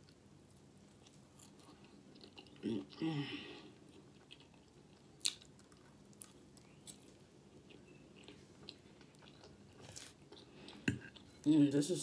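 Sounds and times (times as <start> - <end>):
chewing food: 0.0 - 11.4.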